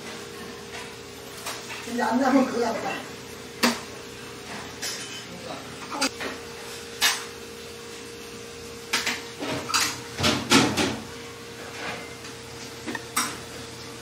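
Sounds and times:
tableware clinking: 4.5s - 6.4s.

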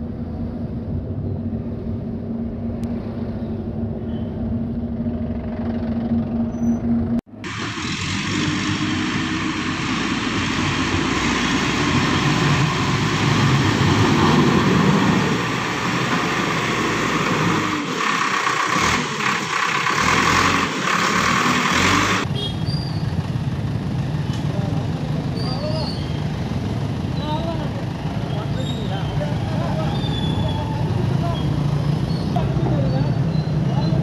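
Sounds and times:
backhoe diesel engine running: 7.4s - 22.2s.

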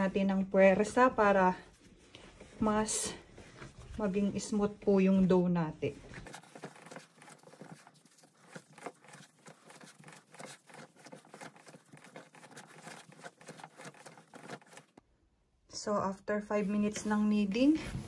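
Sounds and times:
hands kneading dough: 6.1s - 15.0s.

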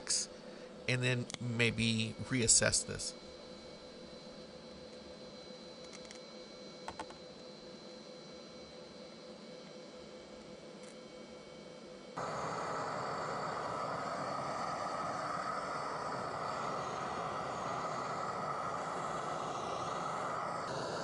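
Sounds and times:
brazing arc hiss: 12.2s - 21.0s
gas torch flame rushing: 12.2s - 21.0s.

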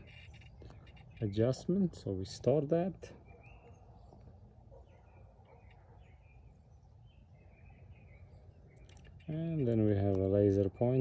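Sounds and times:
faint bird chirps: 0.0s - 1.7s, 3.1s - 9.9s.

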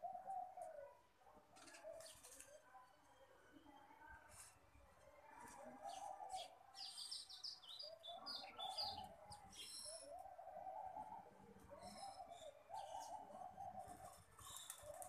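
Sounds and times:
sparrows chirping: 5.3s - 15.0s.

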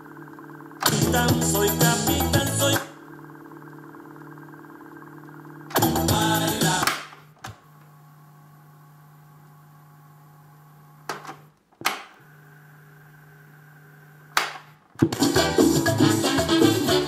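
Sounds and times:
deck motor humming: 0.0s - 11.1s.

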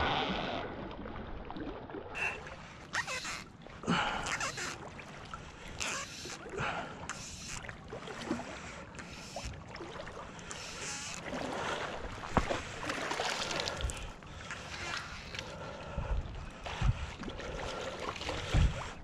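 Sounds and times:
water sloshing around legs: 0.8s - 19.0s.

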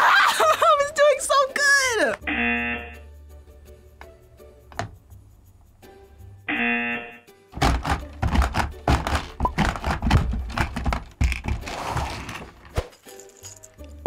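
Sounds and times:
rapid plastic clacking and thumping: 7.6s - 12.7s.

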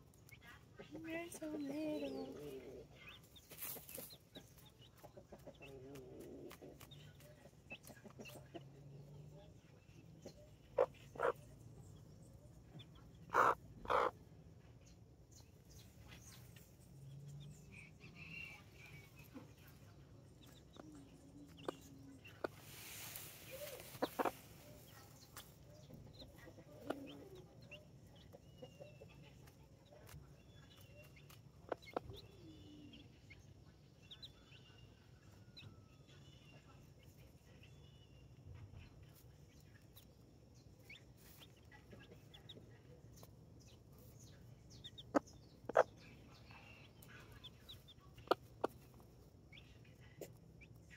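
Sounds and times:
chicks peeping: 0.0s - 50.9s
hen clucking: 0.8s - 8.9s, 10.2s - 11.5s, 12.8s - 14.3s, 20.4s - 29.3s, 44.7s - 49.6s.

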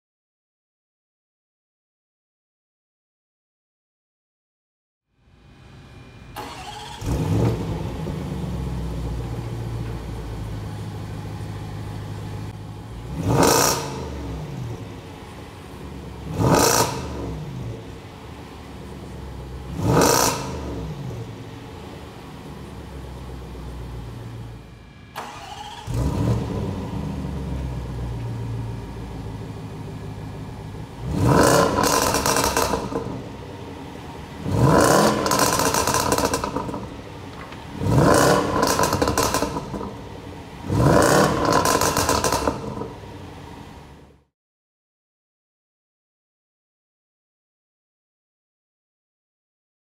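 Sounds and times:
car engine revving and idling: 6.4s - 44.3s.

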